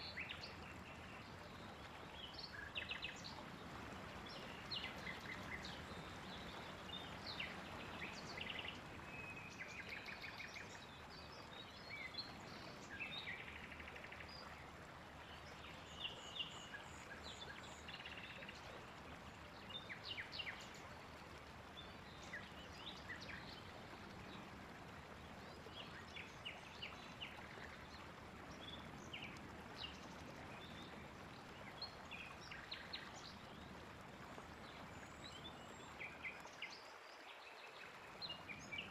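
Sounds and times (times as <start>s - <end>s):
faint outdoor hiss: 0.0s - 38.9s
songbirds chirping: 0.0s - 38.9s.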